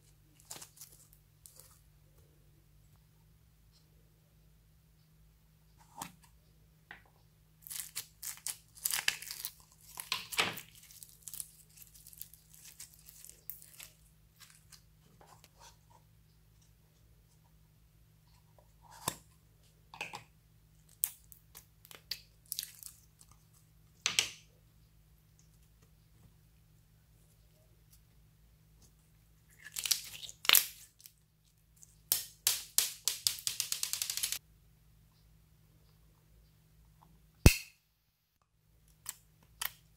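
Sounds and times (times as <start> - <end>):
slime crackling and popping: 7.6 - 14.6.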